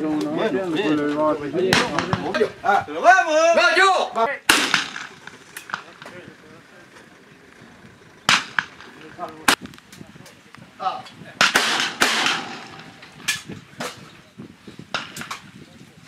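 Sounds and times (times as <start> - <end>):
shotgun shots: 4.5 - 6.2, 8.3 - 9.0, 11.4 - 14.0.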